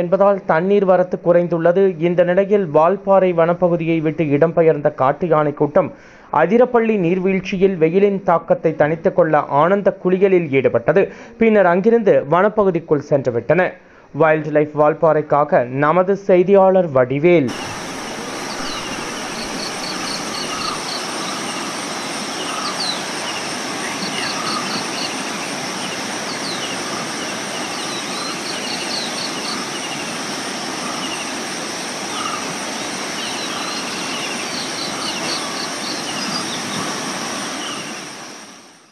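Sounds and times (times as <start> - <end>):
birds calling: 17.5 - 38.6
river rushing over rocks: 17.5 - 38.7
high insect drone: 17.5 - 38.9.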